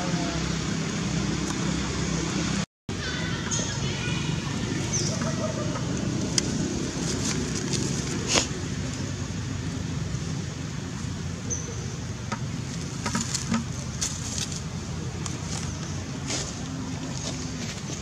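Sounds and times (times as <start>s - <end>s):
dry leaves rustling: 3.1s - 18.0s
steady low rumble: 3.8s - 18.0s.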